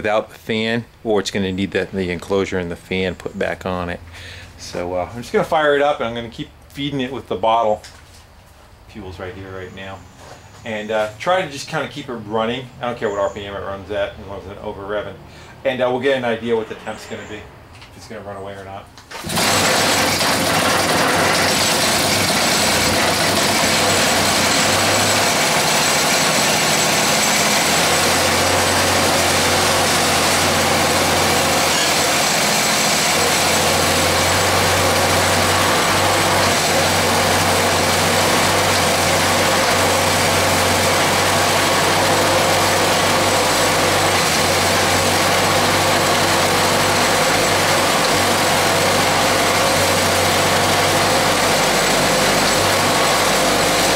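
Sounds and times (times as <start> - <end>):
small engine running: 19.1 - 53.9.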